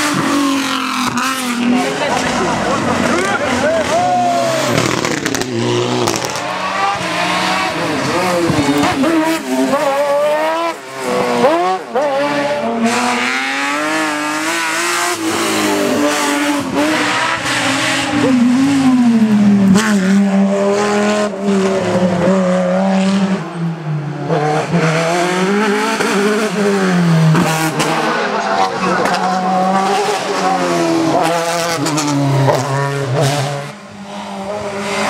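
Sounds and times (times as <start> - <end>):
race car engines revving: 0.0 - 35.0.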